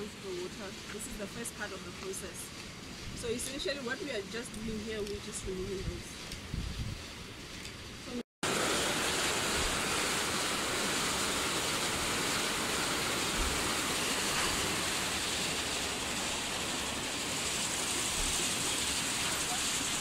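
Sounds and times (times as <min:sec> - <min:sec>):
water rushing through channel: 0:08.4 - 0:20.0.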